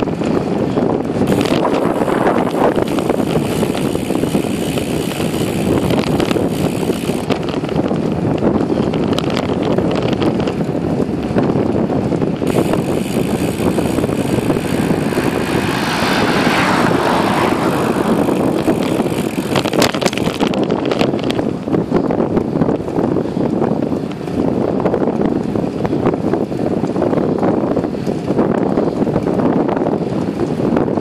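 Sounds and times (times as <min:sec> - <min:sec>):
tyre noise on asphalt: 0:00.0 - 0:31.0
wind buffeting microphone: 0:00.0 - 0:31.0
cars passing with a swish: 0:13.3 - 0:19.9.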